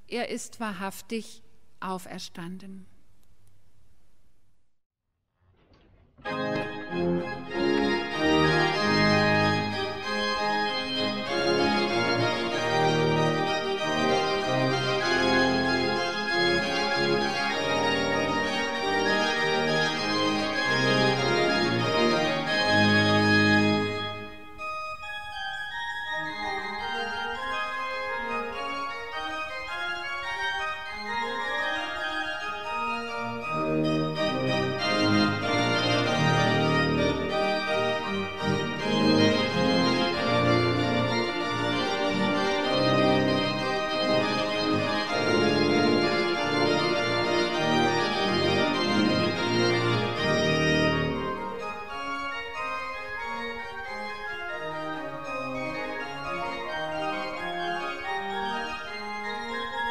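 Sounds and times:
deep organ pedal bass: 6.2 - 24.4, 29.6 - 51.8
church pipe organ playing: 6.2 - 59.9.

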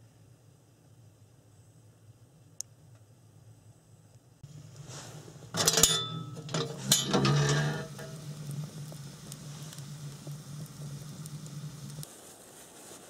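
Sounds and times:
steady low hum: 0.0 - 12.1
metal cookware clattering: 5.5 - 8.5
short ringing clinks: 5.6 - 7.6.

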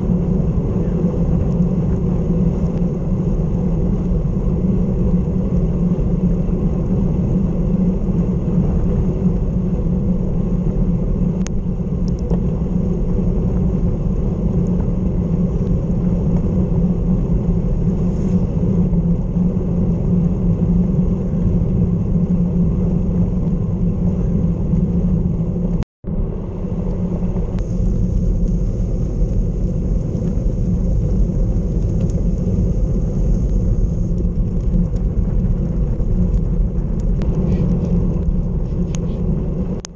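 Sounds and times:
wind rushing over microphone: 0.0 - 39.9
tyre hiss on wet road: 27.6 - 34.1.

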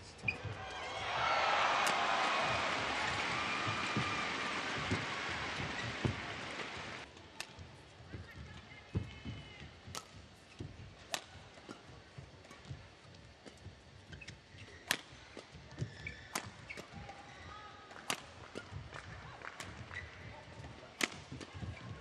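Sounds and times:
shoes squeaking on court: 0.0 - 7.0
racket striking shuttlecock: 1.8 - 6.9, 11.1 - 11.8.

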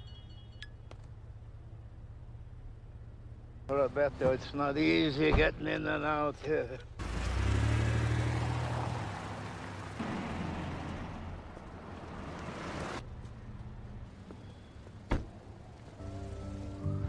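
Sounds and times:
street ambience: 0.0 - 17.0
car driving off: 7.0 - 13.0.

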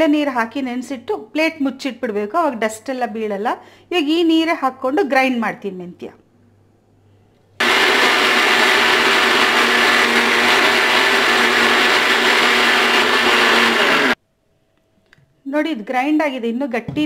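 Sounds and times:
mixer grinder whirring: 7.6 - 14.2.

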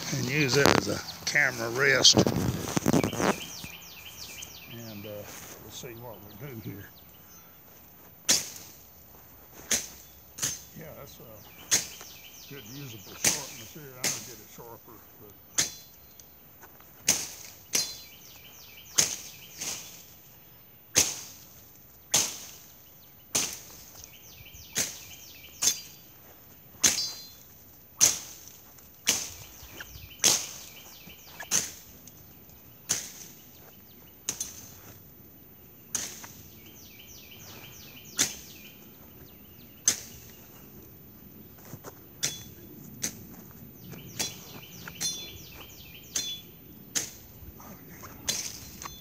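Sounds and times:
machete chopping through brush: 8.2 - 8.8, 9.6 - 10.7, 11.7 - 12.2, 13.1 - 14.4, 15.5 - 15.9, 17.0 - 18.2, 18.9 - 20.2, 20.9 - 22.7, 23.3 - 24.0, 24.7 - 26.0, 26.8 - 27.3, 28.0 - 29.5, 30.2 - 31.9, 32.8 - 33.4, 34.2 - 34.8, 35.9 - 36.5, 38.1 - 38.6, 39.8 - 40.3, 46.1 - 47.2, 48.2 - 49.0.

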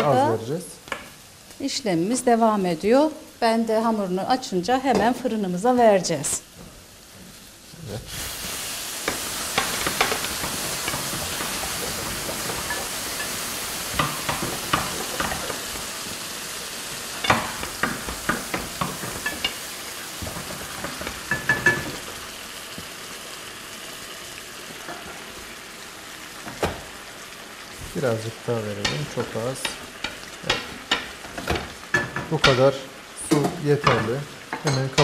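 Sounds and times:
water sizzling in hot pan: 0.0 - 35.0
wooden spoon knocking against pan: 13.9 - 15.6, 17.2 - 19.6.

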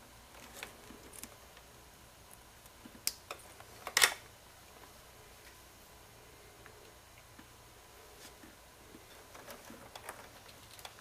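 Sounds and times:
wiring handling noises: 9.2 - 11.0.

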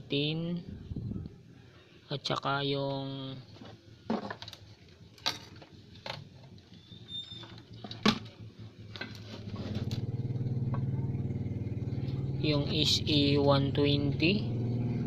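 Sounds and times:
vehicle engine running: 4.9 - 15.0.

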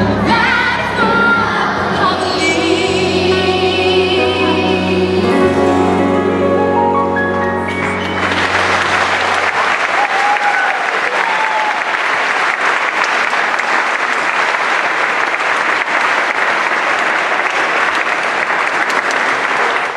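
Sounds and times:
song final chord: 2.1 - 9.8
audience applauding: 7.7 - 19.9.

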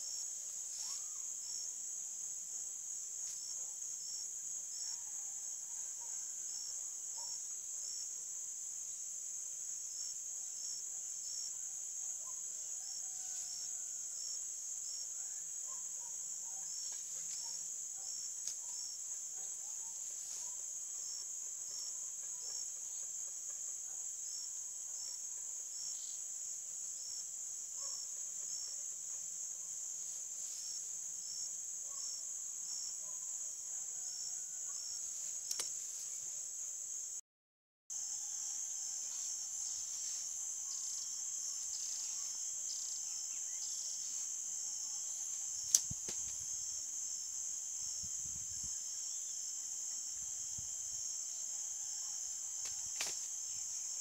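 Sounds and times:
faint chirps: 0.0 - 1.6
insects buzzing in grass: 0.0 - 37.2, 37.9 - 54.0.

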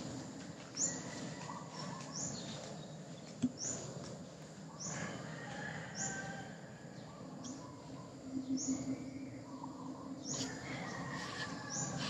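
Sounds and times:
birds calling: 0.0 - 12.0
low background noise: 0.0 - 12.0
soft bird chirps: 7.0 - 12.0.

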